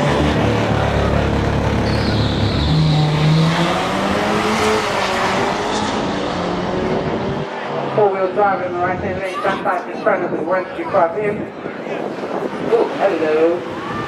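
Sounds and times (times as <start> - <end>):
cars accelerating hard: 0.0 - 9.1.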